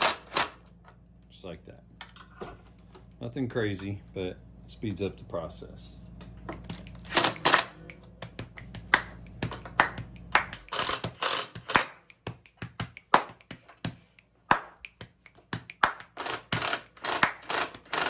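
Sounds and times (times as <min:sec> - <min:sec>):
impact driver bursts: 0:00.0 - 0:00.6, 0:07.1 - 0:07.7, 0:10.7 - 0:12.0, 0:16.2 - 0:18.0.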